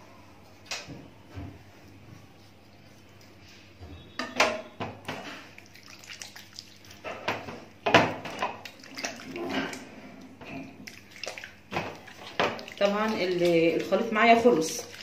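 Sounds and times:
hands squelching in wet paste: 0:05.6 - 0:07.0, 0:08.3 - 0:09.9, 0:10.8 - 0:15.0.

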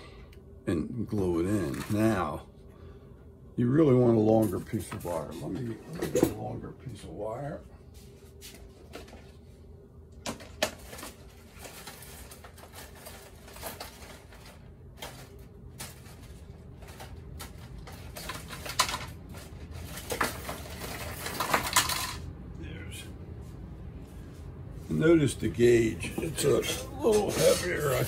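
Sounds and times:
faint steady hum: 0:00.0 - 0:28.0
small objects clicking and rustling: 0:10.6 - 0:22.2.

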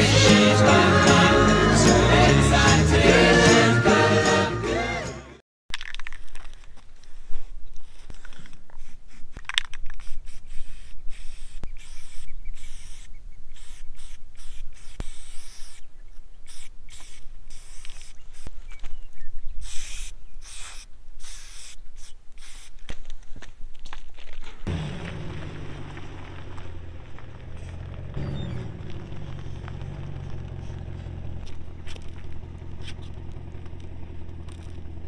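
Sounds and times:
spray paint can hissing: 0:08.8 - 0:18.6, 0:19.6 - 0:22.8.

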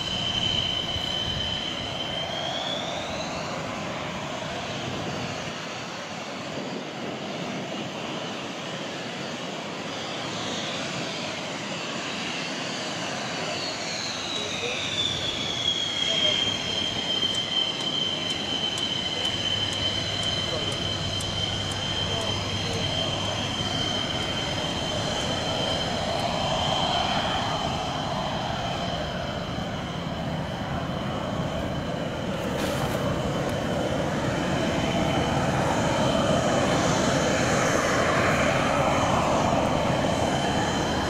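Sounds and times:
jet engine whine: 0:00.0 - 0:41.0
jet rush: 0:13.0 - 0:41.0.

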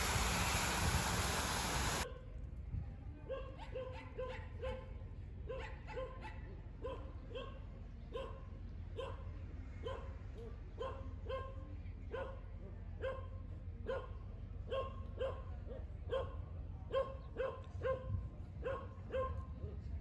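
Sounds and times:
dog barking: 0:03.3 - 0:10.2, 0:10.8 - 0:12.4, 0:13.0 - 0:19.5.

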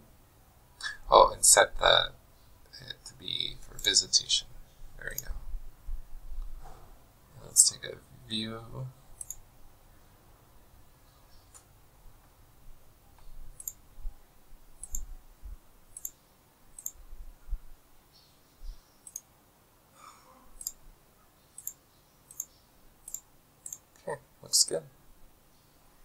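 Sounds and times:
computer mouse clicking: 0:09.2 - 0:09.4, 0:13.5 - 0:13.8, 0:14.8 - 0:15.1, 0:15.9 - 0:16.2, 0:16.8 - 0:17.0, 0:19.0 - 0:19.3, 0:20.6 - 0:20.8, 0:21.6 - 0:23.9.

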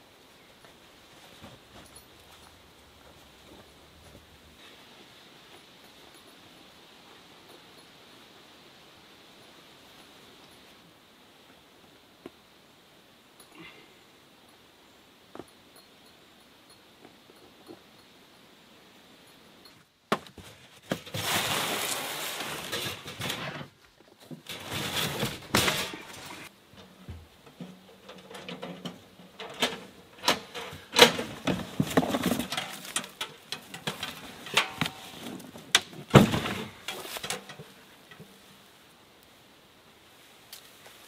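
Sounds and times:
cardboard scraping and rustling: 0:20.3 - 0:23.8, 0:24.4 - 0:26.5, 0:31.0 - 0:33.2.

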